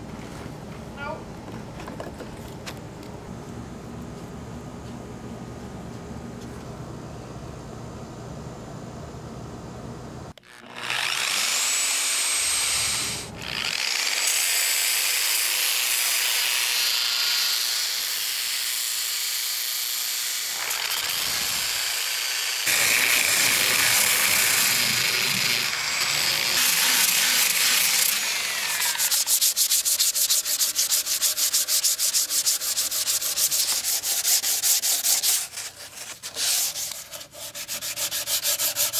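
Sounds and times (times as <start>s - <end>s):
power sander on wood: 10.4s - 38.9s
hand sanding strokes: 22.6s - 38.9s.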